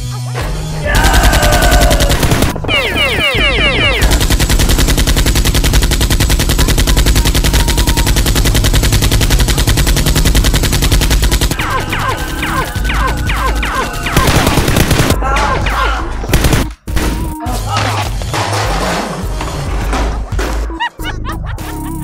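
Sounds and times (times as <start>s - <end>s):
rapid machine-gun fire: 1.0s - 15.2s, 16.3s - 16.7s.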